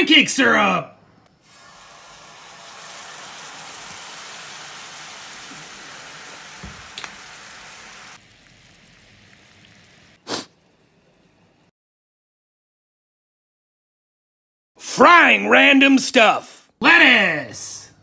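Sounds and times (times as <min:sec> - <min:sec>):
syrup sizzling in a skillet: 0:01.4 - 0:10.2.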